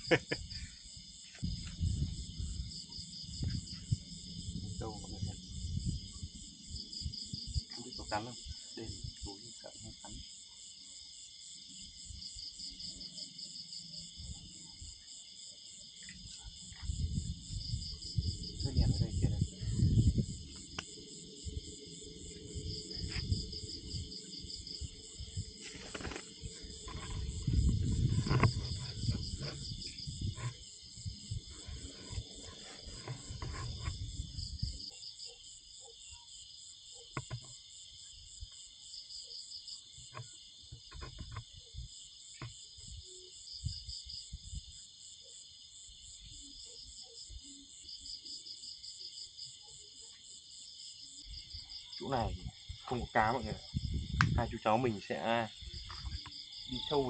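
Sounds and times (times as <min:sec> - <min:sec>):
crickets chirping: 0:00.0 - 0:57.0
low rumbling: 0:26.4 - 0:34.7.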